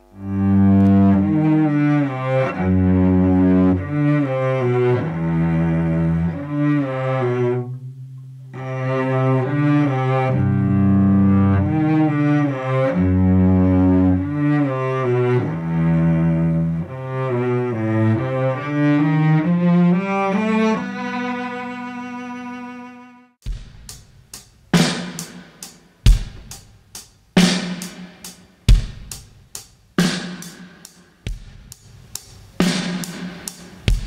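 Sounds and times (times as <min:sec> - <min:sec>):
bowed cello long notes: 0:00.0 - 0:23.4.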